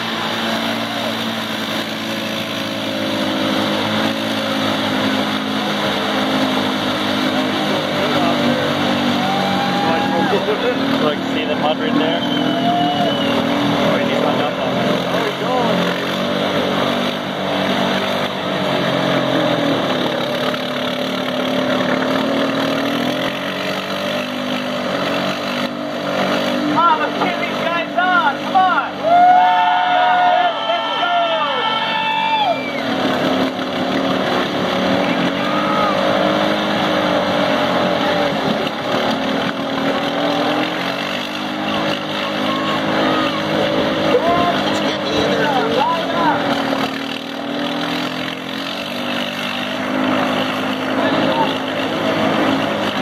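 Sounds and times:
hiss of churned mud and water: 0:00.0 - 0:11.0
atv engines running hard: 0:00.0 - 0:53.0.

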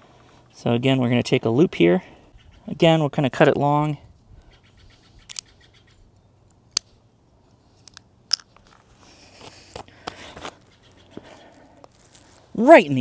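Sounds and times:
cord rustling: 0:07.5 - 0:13.0.

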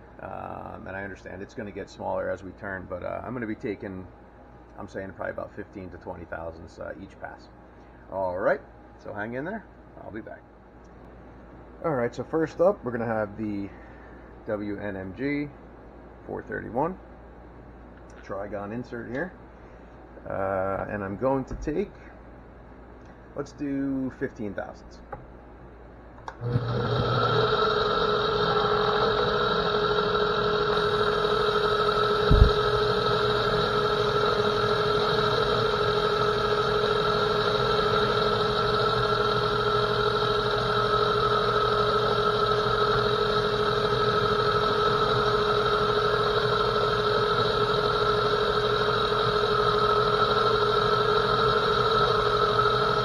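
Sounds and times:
metal lathe running: 0:26.4 - 0:53.0.

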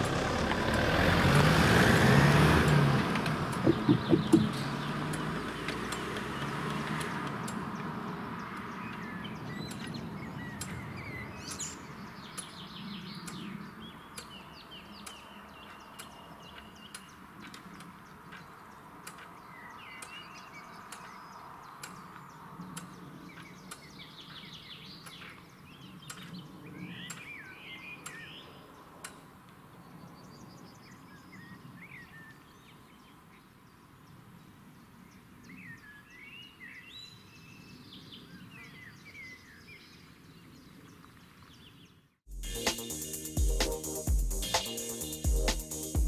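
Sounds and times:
sharp clicks: 0:02.7 - 0:06.3
birds chirping and trilling: 0:03.6 - 0:29.2, 0:29.8 - 0:46.0.

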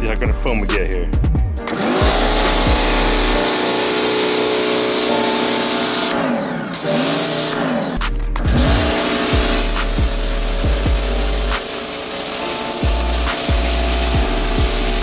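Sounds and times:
deep bass: 0:00.0 - 0:03.5, 0:08.0 - 0:11.6, 0:12.8 - 0:15.0
synth chords with pitch sweeps: 0:00.0 - 0:15.0.

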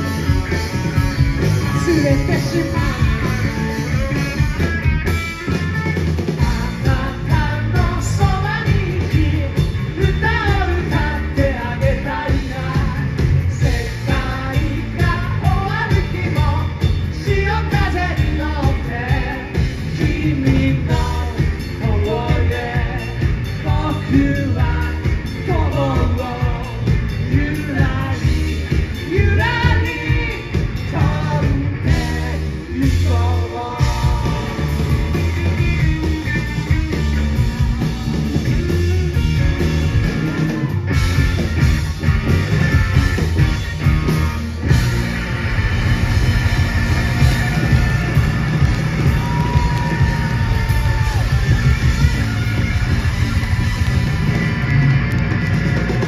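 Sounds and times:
drums: 0:00.0 - 0:56.0
electric bass: 0:00.0 - 0:56.0
electric guitar: 0:00.0 - 0:56.0
man singing: 0:01.6 - 0:04.0, 0:06.4 - 0:36.2.

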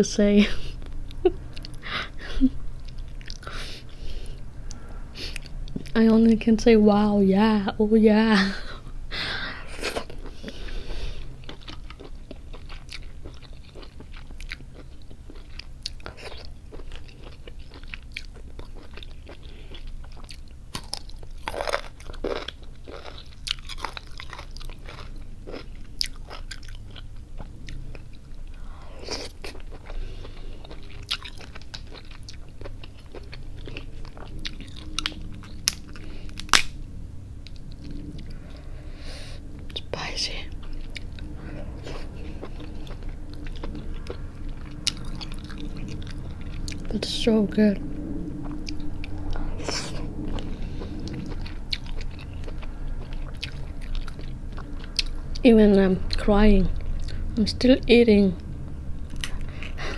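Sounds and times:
chewing: 0:00.8 - 0:04.0, 0:09.8 - 0:36.7, 0:39.5 - 0:47.2, 0:47.8 - 0:55.5, 0:56.7 - 0:57.3
crab shell cracking: 0:34.8 - 0:36.8.

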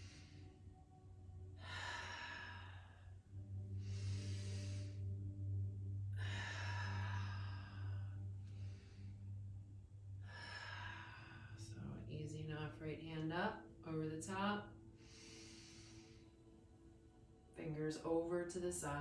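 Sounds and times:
woman breathing deeply: 0:00.0 - 0:12.1, 0:14.7 - 0:17.5
steady low hum: 0:00.0 - 0:19.0
sighing out-breaths: 0:01.6 - 0:03.2, 0:06.1 - 0:09.5, 0:10.2 - 0:11.8.

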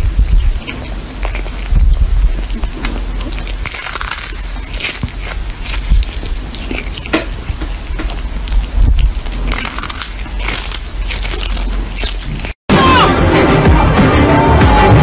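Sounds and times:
kitten crunching on fish: 0:00.0 - 0:12.6.

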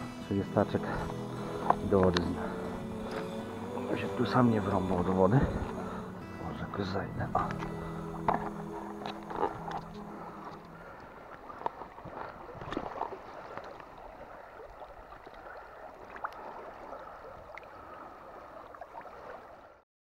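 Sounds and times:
stream gurgling over stones: 0:00.0 - 0:19.8
small splashes and drips: 0:10.5 - 0:19.8.

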